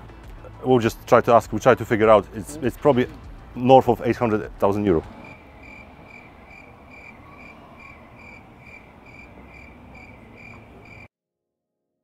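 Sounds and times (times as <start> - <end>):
low background noise: 2.3 - 11.1.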